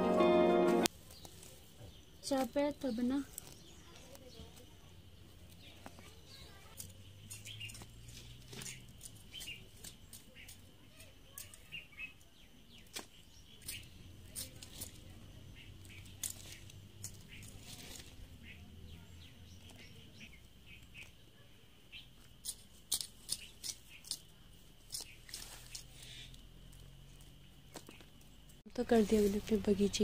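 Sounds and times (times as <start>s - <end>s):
hand hoe scraping soil: 24.9s - 25.9s.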